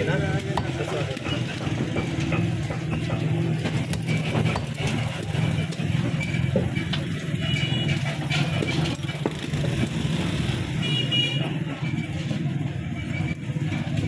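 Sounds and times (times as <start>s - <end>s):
cleaver chopping on wooden block: 0.4s - 0.9s, 2.0s - 5.1s.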